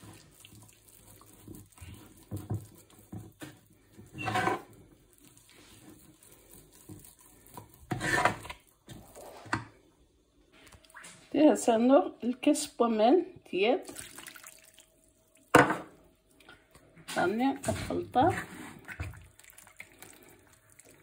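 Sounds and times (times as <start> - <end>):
fork stirring dough: 0.0 - 9.4
fork scraping bowl: 4.1 - 4.8, 7.8 - 8.6.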